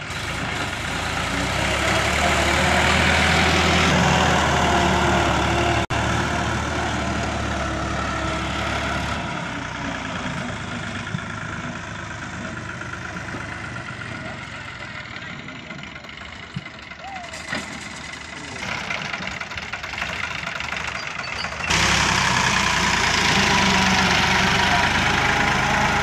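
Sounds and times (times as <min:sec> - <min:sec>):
tractor diesel engine running: 0:00.0 - 0:26.0.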